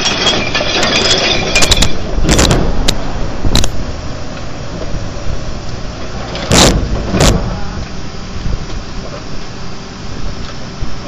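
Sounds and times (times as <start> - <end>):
truck engine running: 0.0 - 11.0.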